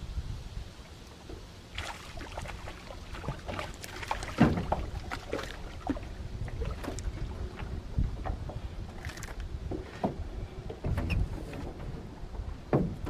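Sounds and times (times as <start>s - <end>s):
wind buffeting microphone: 0.0s - 1.6s, 2.2s - 13.0s
water splashes: 0.6s - 9.4s.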